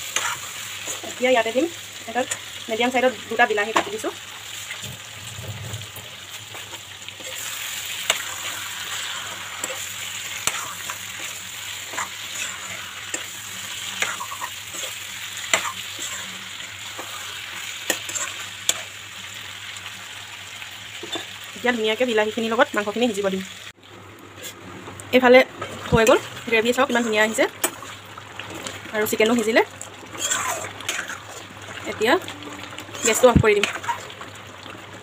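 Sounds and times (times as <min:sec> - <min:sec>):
food sizzling in a wok: 0:00.0 - 0:35.0.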